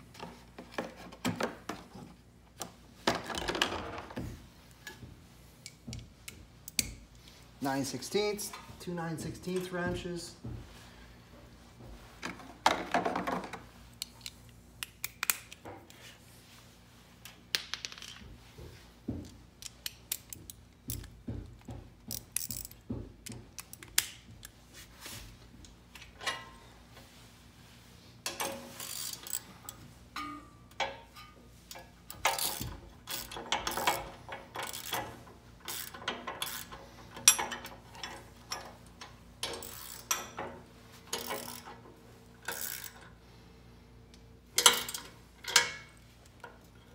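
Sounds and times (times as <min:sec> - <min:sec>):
wrenches clicking and clinking: 0:19.3 - 0:24.6, 0:28.2 - 0:43.2, 0:44.5 - 0:46.9.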